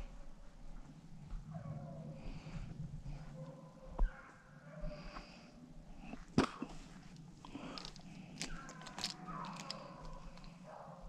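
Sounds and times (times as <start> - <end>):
distant dogs baying: 1.4 - 5.5, 7.8 - 11.0
twigs cracking: 6.5 - 10.6
footsteps in brush: 6.7 - 10.6.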